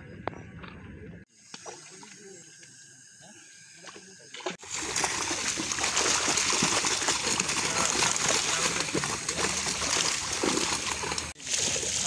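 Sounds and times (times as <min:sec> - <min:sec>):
water splashing from thrashing fish: 0:04.4 - 0:12.0.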